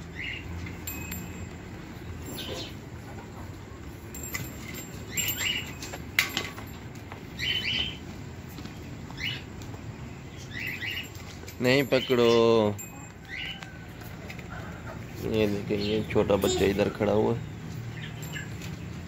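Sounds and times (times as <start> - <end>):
bird chirps: 2.0 - 2.8, 5.1 - 6.2, 7.4 - 8.0, 10.2 - 13.8, 15.7 - 19.0.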